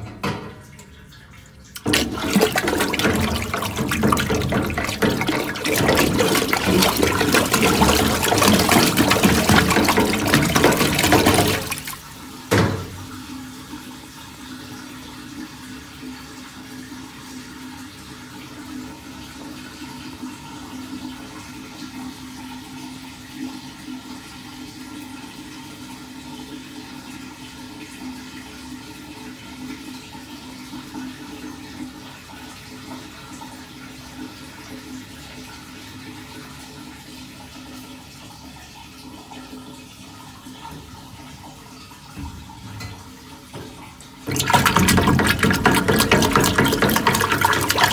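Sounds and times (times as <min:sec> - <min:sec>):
water rushing down a drain: 0:00.8 - 0:13.4, 0:29.5 - 0:47.9.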